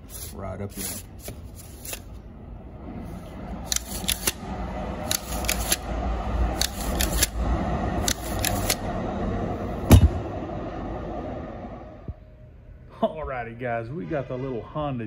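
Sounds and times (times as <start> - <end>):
recoil starter rope turning: 3.6 - 8.9.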